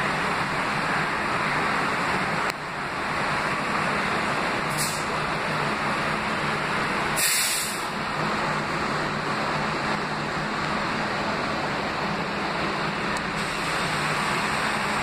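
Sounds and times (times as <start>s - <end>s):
subway train humming: 0.0s - 15.0s
air hiss: 4.7s - 5.2s, 7.1s - 8.0s.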